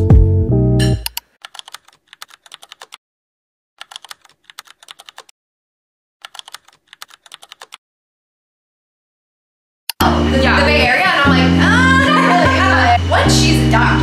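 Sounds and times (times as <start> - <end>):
keyboard keys clicking: 1.0 - 3.0, 3.8 - 5.3, 6.2 - 7.8.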